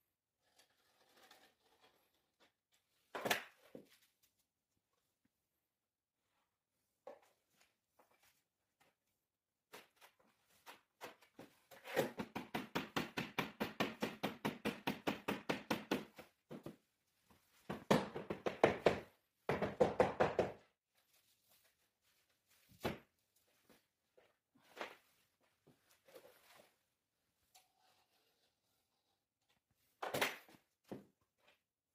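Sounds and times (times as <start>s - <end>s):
rapid knocking on wooden floor plank: 17.7s - 20.6s.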